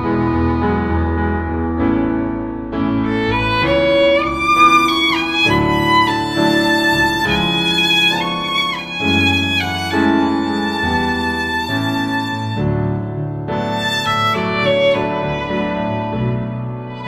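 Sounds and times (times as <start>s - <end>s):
violin melody: 0.0s - 17.0s.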